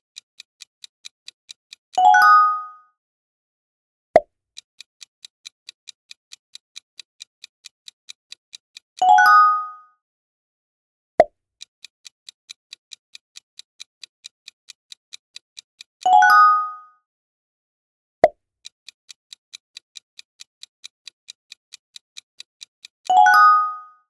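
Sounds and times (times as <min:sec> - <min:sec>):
countdown clock ticking: 0:04.6 - 0:09.8, 0:11.6 - 0:16.8, 0:18.6 - 0:24.0.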